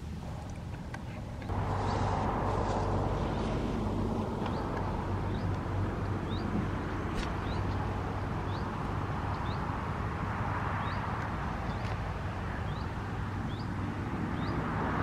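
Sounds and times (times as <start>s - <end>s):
low engine drone: 0.0s - 14.6s
bird chirping: 4.0s - 9.8s, 10.8s - 14.7s.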